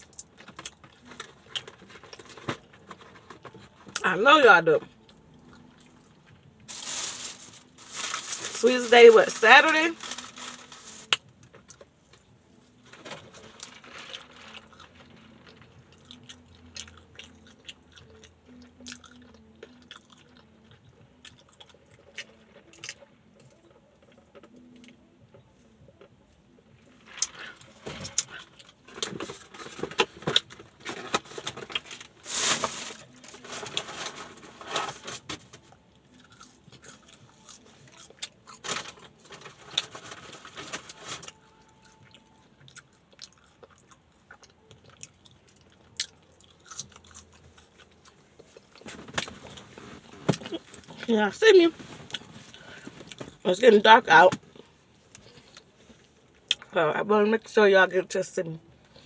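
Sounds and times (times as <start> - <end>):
chewing and crunching: 12.9 - 25.0, 35.6 - 51.1, 52.0 - 53.5.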